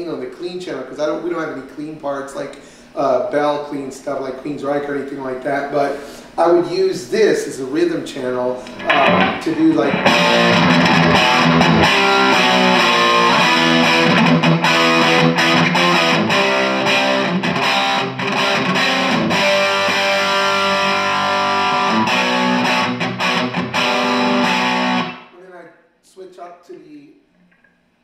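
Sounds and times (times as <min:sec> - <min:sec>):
electric guitar rhythm chords: 0:08.6 - 0:25.3.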